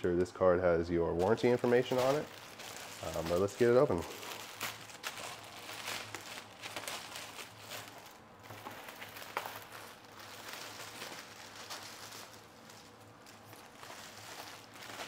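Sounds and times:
plastic bag crinkling: 1.1s - 15.0s.

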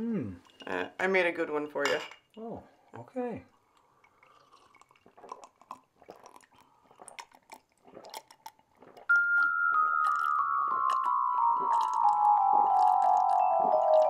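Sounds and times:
people gulping and swallowing: 3.5s - 14.0s
descending mallet percussion notes: 9.1s - 14.0s.

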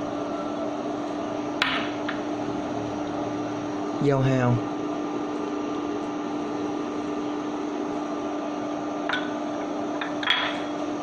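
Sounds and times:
induction cooktop humming: 0.0s - 11.0s.

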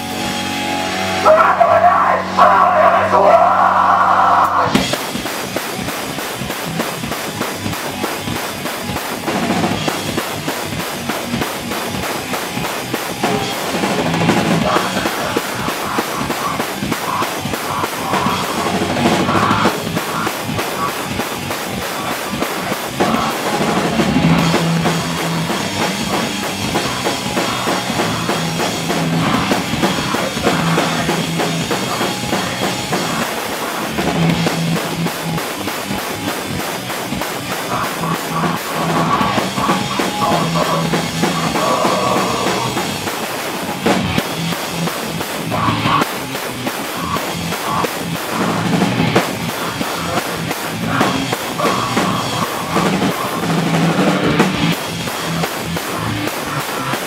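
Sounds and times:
drum kit drumming: 0.0s - 57.0s
electric guitars: 0.0s - 57.0s
rock band playing: 0.0s - 57.0s.

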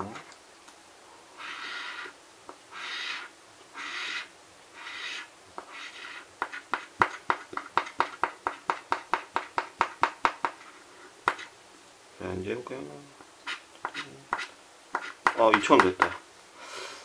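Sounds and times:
coin scratching lottery ticket: 2.7s - 6.7s.

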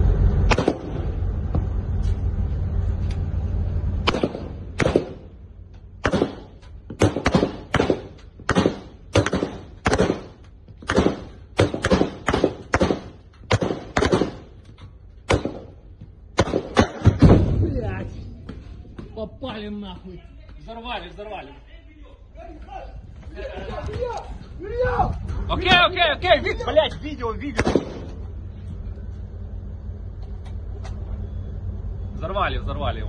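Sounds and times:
low rumble: 0.0s - 33.0s
rifle shots with echo: 0.5s - 1.1s, 4.0s - 5.4s, 6.0s - 14.6s, 15.3s - 17.6s, 27.5s - 28.2s.

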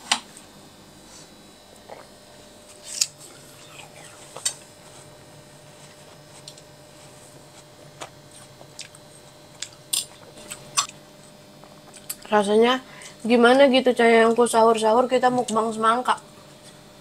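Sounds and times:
soft chewing: 5.7s - 12.3s.

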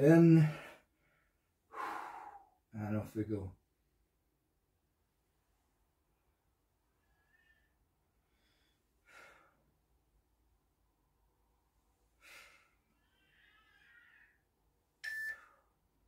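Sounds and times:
man breathing forcefully: 1.7s - 2.6s.

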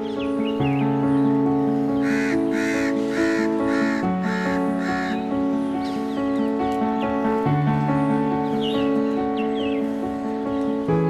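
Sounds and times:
background music with held notes: 0.0s - 11.0s
crow cawing: 1.9s - 5.4s.

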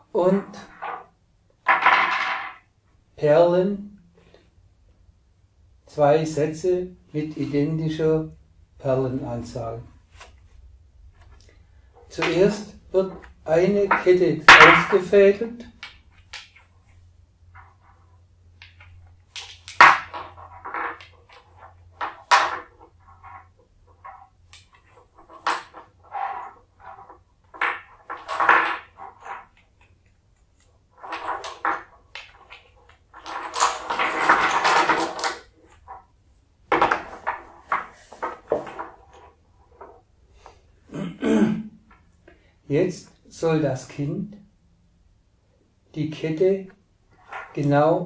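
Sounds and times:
wooden beads clacking on board: 0.4s - 2.7s, 11.2s - 36.1s, 36.7s - 40.6s, 47.1s - 47.8s
cord rasping through wooden beads: 15.8s - 36.1s.

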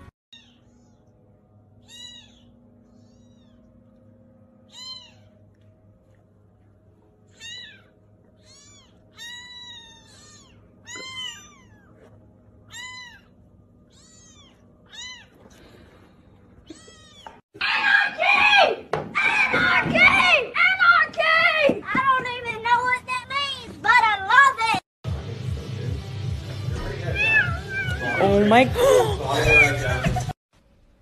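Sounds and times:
kittens mewing: 1.8s - 3.8s, 4.6s - 5.6s, 7.2s - 15.6s, 16.6s - 17.4s, 26.8s - 30.4s.

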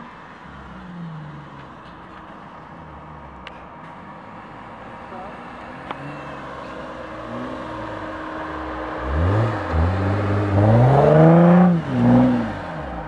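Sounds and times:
car engine revving: 5.5s - 13.0s.

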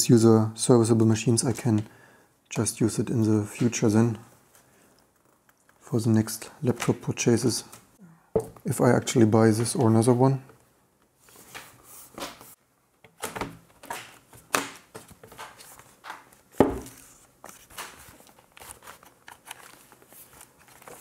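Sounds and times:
laptop thump: 16.6s - 17.0s.

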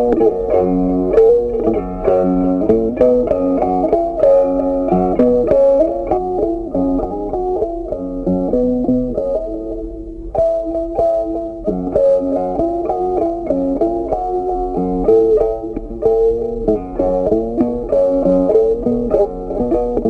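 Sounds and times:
plucked guitar melody: 0.0s - 20.0s.

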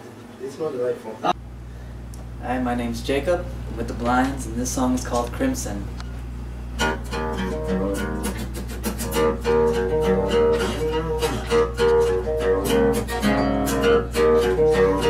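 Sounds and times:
acoustic guitar picked: 6.7s - 15.0s.

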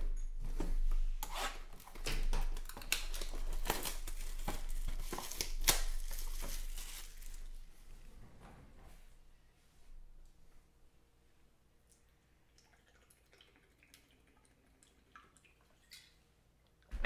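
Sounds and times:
plastic shrink wrap tearing: 1.2s - 7.7s.

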